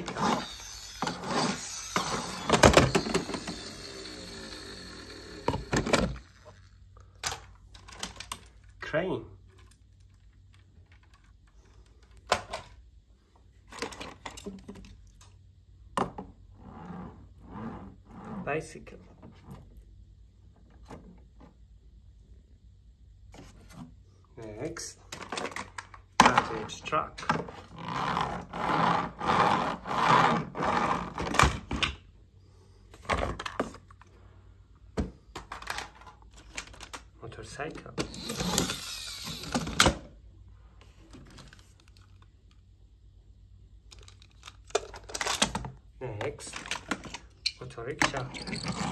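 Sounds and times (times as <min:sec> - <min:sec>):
toy vehicles knocking and clattering: 0:00.0 - 0:08.6.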